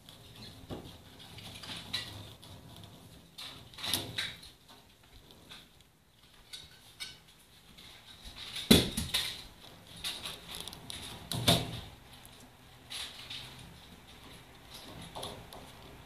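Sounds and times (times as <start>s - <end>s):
wire cage bars rattling: 5.4s - 12.0s, 12.8s - 16.0s.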